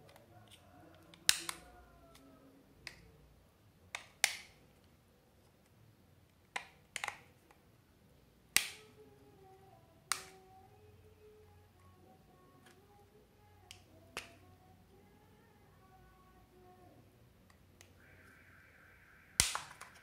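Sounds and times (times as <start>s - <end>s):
plastic clips snapping: 0.1s - 3.0s, 3.9s - 4.6s, 6.5s - 7.3s, 8.5s - 8.9s, 10.1s - 10.4s, 13.7s - 14.4s, 19.4s - 20.0s.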